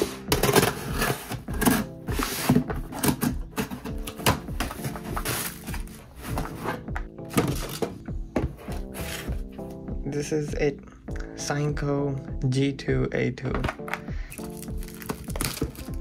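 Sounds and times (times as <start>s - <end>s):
background music: 0.0s - 16.0s
plastic packing wrap crinkling: 14.3s - 16.0s.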